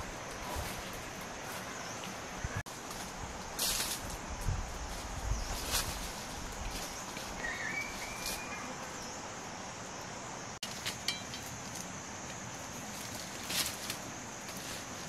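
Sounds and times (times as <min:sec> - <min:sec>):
high insect drone: 0:00.0 - 0:15.0
bird call: 0:07.4 - 0:08.8.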